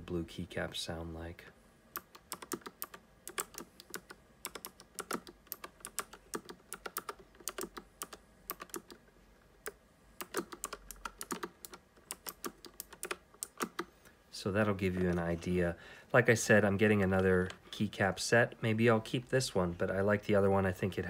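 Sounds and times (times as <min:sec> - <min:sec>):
mechanical keyboard clicking: 0:02.0 - 0:09.0, 0:09.6 - 0:13.9.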